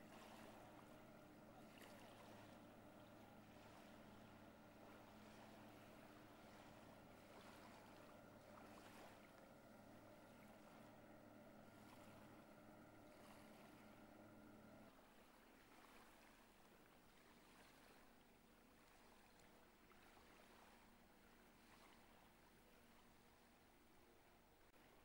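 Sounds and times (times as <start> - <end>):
motorboat engine humming: 0.0 - 25.0.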